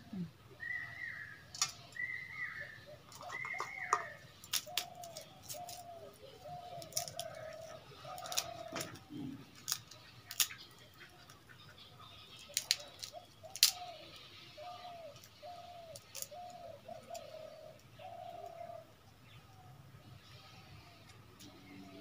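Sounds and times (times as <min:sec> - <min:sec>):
crab shells cracking: 0:01.5 - 0:02.0, 0:03.1 - 0:11.4, 0:12.3 - 0:14.2, 0:15.1 - 0:18.6.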